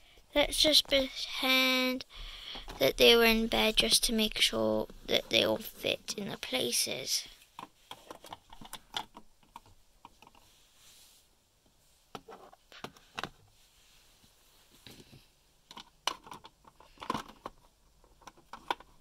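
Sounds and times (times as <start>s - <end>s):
toy figures clicking and knocking: 7.6s - 10.4s, 15.0s - 19.0s.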